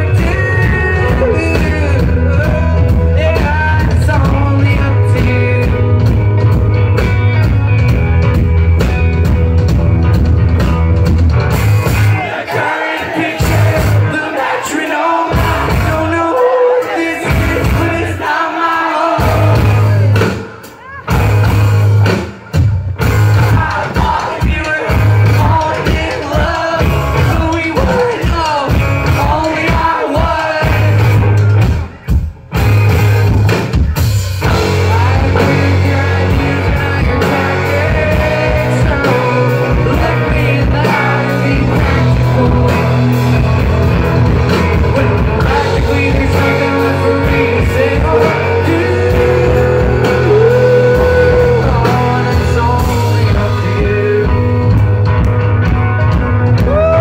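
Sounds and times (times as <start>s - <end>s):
person singing: 0.0s - 6.2s, 12.2s - 21.2s, 23.4s - 31.2s, 33.9s - 55.0s, 56.6s - 57.0s
indie rock band playing live: 0.0s - 57.0s.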